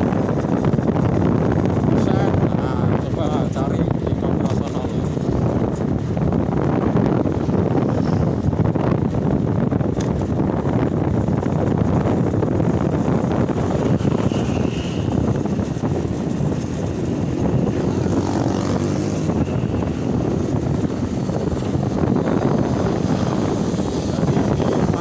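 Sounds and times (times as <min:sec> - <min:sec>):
road and wind noise: 0:00.0 - 0:25.0
small motorcycle engine running: 0:11.1 - 0:25.0.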